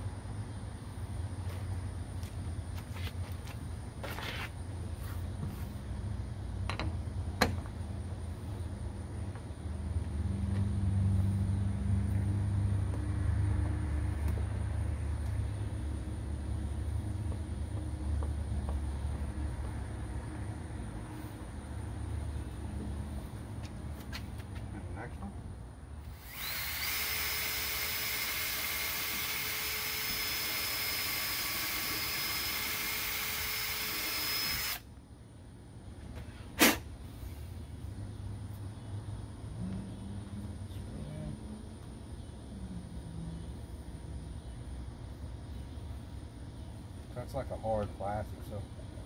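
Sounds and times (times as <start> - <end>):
engine running hum: 4.8 - 30.4, 34.6 - 49.0
cordless drill whining: 26.1 - 34.8.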